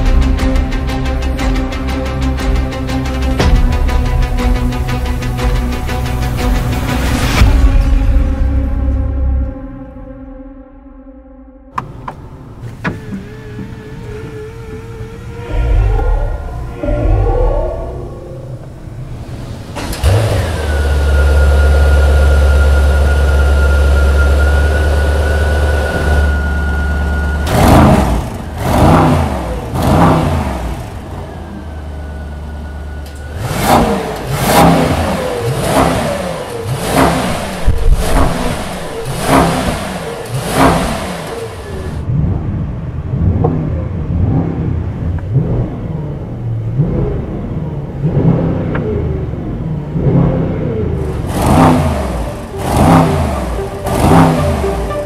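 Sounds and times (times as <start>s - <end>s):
car engine idling: 11.7s - 55.0s
engine revving in blips: 11.7s - 55.0s.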